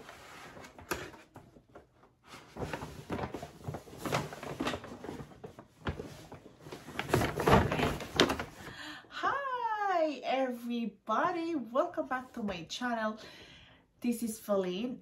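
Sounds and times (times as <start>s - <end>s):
paper bags rustling and crinkling: 0.0s - 8.8s.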